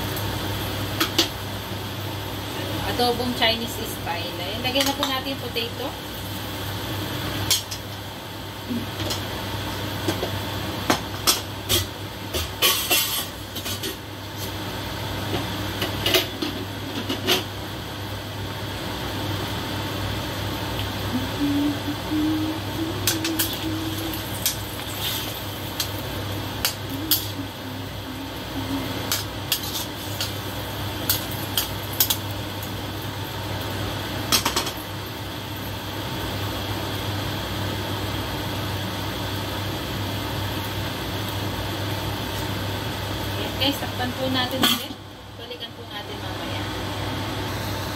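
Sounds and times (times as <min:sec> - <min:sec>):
steady low hum: 0:00.0 - 0:47.9
utensil scraping steel wok: 0:11.7 - 0:14.6, 0:23.0 - 0:26.0, 0:26.6 - 0:27.5, 0:28.4 - 0:32.2.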